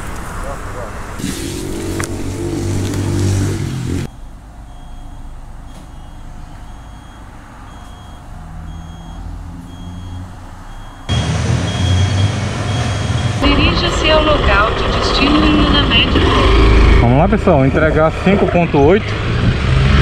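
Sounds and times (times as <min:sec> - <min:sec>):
high electronic beeps: 0:04.0 - 0:14.6.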